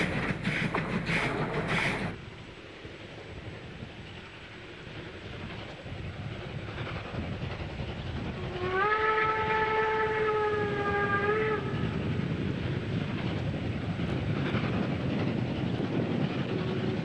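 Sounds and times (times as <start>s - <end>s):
steam locomotive working noise: 0.0s - 17.0s
steam whistle blast: 8.5s - 11.8s.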